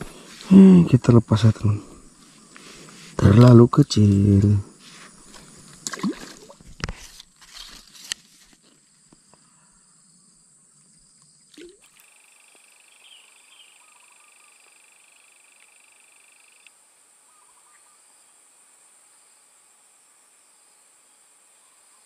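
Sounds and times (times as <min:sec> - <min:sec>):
insects chirring: 0:00.0 - 0:22.0
higher buzzing chirr: 0:11.3 - 0:21.8.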